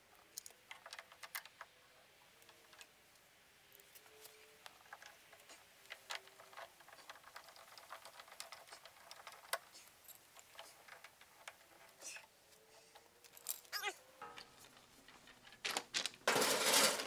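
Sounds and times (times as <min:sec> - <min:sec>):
small clicks and ticks: 0:00.1 - 0:13.8.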